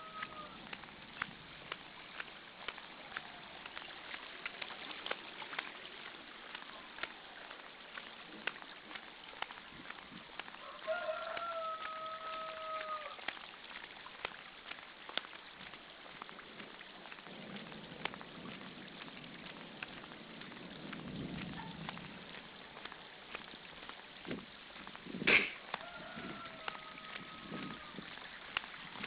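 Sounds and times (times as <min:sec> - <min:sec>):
rooster crowing: 0:00.0 - 0:00.6, 0:10.6 - 0:13.2, 0:25.8 - 0:28.0
rain falling on pavement: 0:00.0 - 0:29.0.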